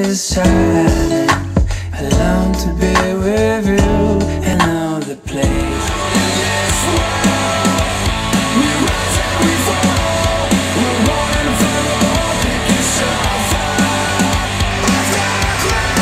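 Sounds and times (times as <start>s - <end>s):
death metal over speakers: 5.4s - 16.0s.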